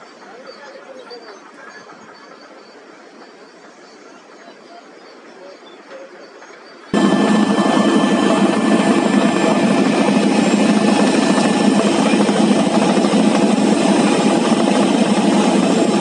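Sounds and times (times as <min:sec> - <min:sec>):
helicopter engine and rotor: 0:06.9 - 0:16.0.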